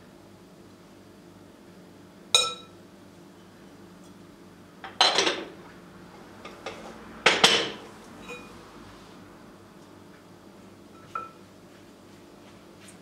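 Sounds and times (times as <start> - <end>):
glass clinking: 2.4 - 2.7, 7.5 - 8.5, 11.0 - 11.4
clattering knocks of dishes: 4.8 - 5.5, 6.5 - 7.8.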